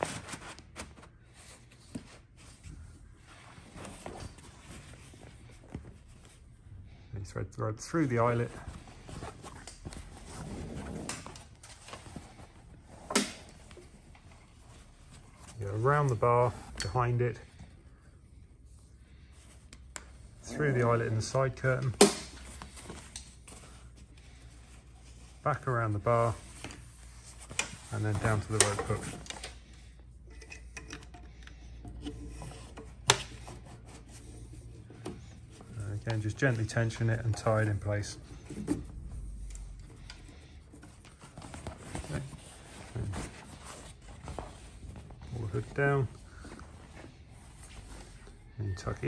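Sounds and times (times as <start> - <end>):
canvas and rope rustling: 7.8 - 17.4, 20.2 - 29.6, 40.5 - 49.0.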